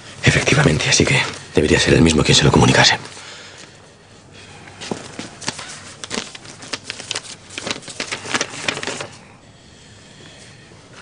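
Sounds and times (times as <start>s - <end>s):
paper rustling and crinkling: 4.8s - 9.3s.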